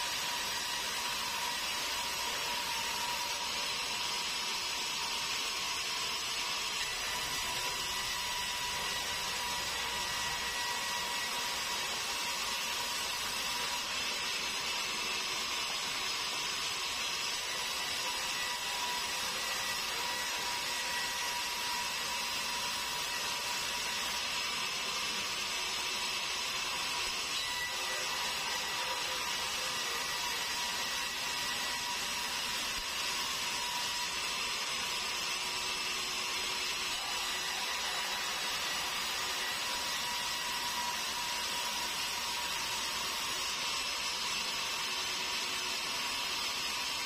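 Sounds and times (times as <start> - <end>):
band saw whining: 0.0 - 47.0.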